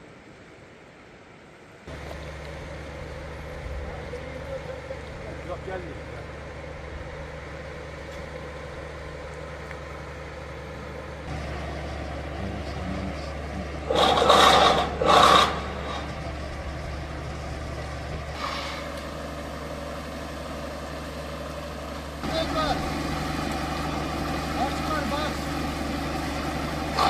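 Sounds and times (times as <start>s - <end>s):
heavy vehicle engine idling: 1.9s - 27.0s
loud short engine bursts: 9.9s - 21.4s, 22.2s - 27.0s.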